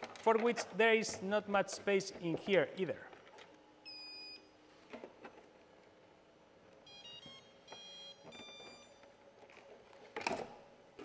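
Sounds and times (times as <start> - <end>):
motor controllers beeping tones: 3.8 - 4.5, 6.8 - 9.0.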